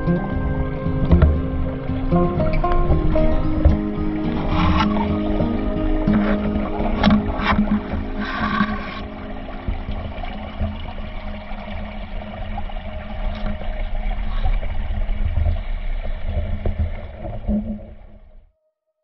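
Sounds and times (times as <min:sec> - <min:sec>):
water sloshing and gurgling: 0:00.0 - 0:18.5.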